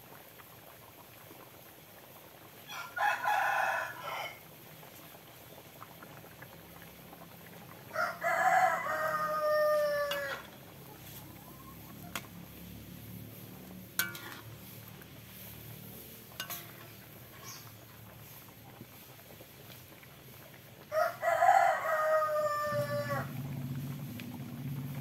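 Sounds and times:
rooster crowing: 2.7 - 4.4, 7.9 - 10.5, 20.9 - 23.5.

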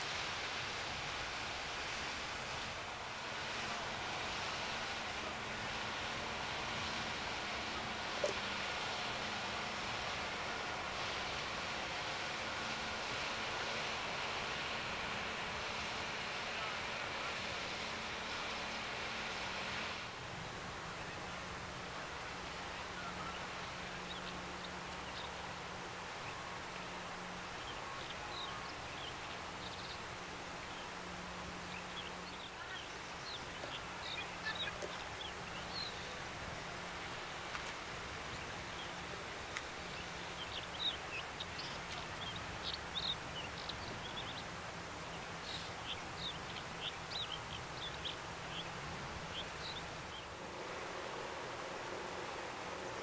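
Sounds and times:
low steady hum: 0.0 - 53.0
outdoor hiss: 0.0 - 53.0
small birds chirping: 20.3 - 51.2.

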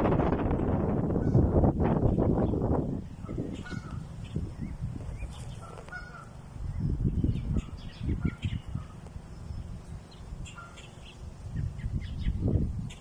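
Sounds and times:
wind rumble on microphone: 0.0 - 13.0
geese honking: 3.2 - 4.4, 5.3 - 6.5, 10.4 - 11.2.

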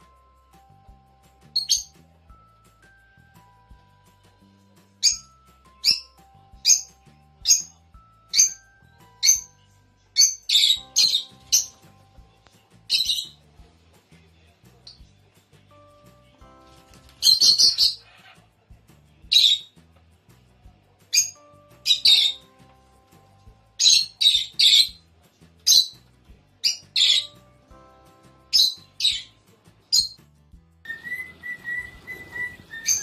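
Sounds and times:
lovebirds shrill chirping: 1.4 - 2.0, 5.0 - 9.6, 10.2 - 13.4, 16.5 - 18.5, 19.3 - 19.8, 21.1 - 22.7, 23.7 - 25.0, 25.7 - 26.0, 26.6 - 27.6, 28.3 - 30.2, 30.9 - 33.0
steady wavering whistle: 30.9 - 33.0.

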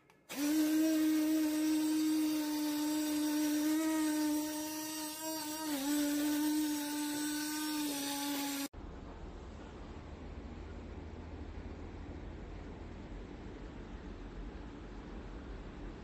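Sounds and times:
bottle blender motor whining: 0.3 - 8.7.

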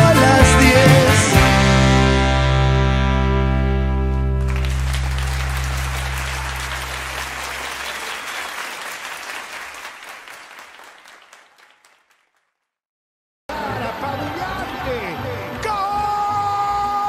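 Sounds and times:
rock guitars ringing chord: 0.0 - 7.4
audience applause: 4.4 - 12.4.

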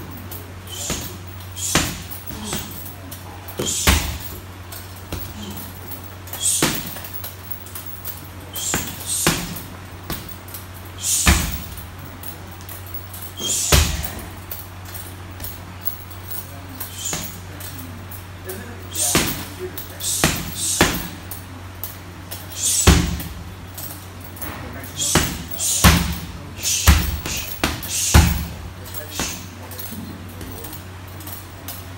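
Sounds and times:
steady low hum: 0.0 - 31.9
gloved punches on heavy bag: 0.8 - 2.8, 3.6 - 4.4, 6.4 - 7.1, 8.6 - 10.4, 11.0 - 11.8, 13.4 - 14.2, 22.6 - 23.4, 25.1 - 28.6.

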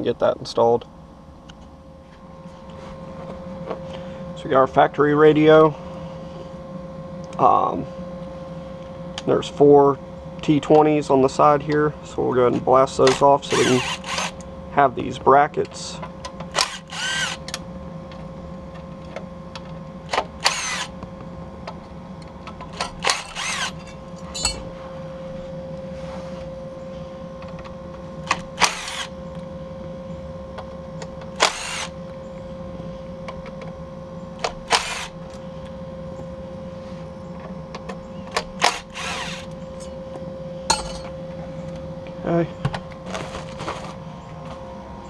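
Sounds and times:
steady low hum: 0.0 - 45.0
cordless driver spinning screws: 13.1 - 14.4, 16.5 - 17.4, 20.4 - 20.9, 22.8 - 23.8, 28.6 - 29.1, 31.4 - 31.9, 34.7 - 35.1, 38.6 - 39.5.

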